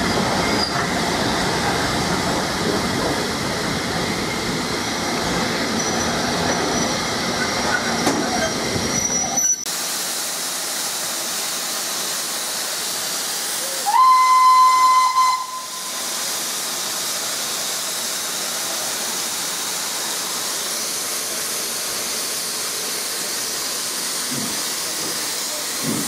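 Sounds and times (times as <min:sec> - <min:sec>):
steam hissing: 0:09.7 - 0:26.0
steam locomotive whistle: 0:13.7 - 0:16.0.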